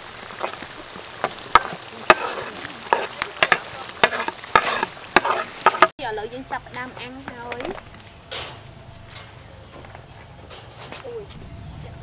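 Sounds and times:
oil sizzling in a wok: 0.0 - 8.2
oil popping and crackling: 0.0 - 11.2.

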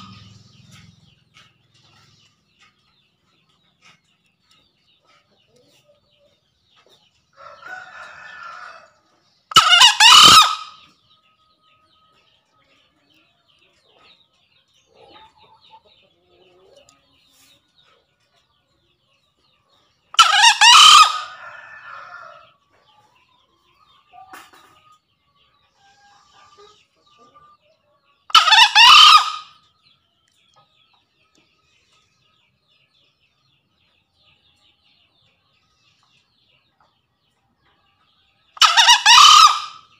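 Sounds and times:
junglefowl crowing: 9.5 - 10.8, 20.2 - 22.4, 28.3 - 29.5, 38.6 - 39.8.

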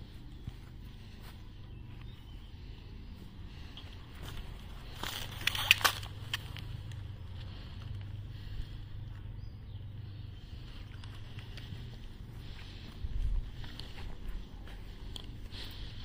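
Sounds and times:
steady low hum: 0.0 - 16.0
sharp clicks and rustles: 3.7 - 8.2.

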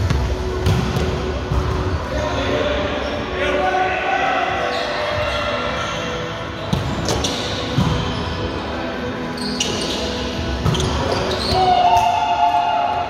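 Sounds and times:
sneaker squeaks: 4.6 - 8.6, 9.2 - 12.1.

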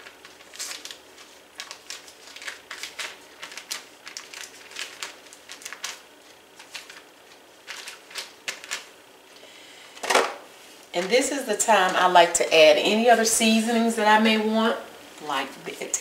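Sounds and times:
paper wrapper crinkling: 0.0 - 9.4.

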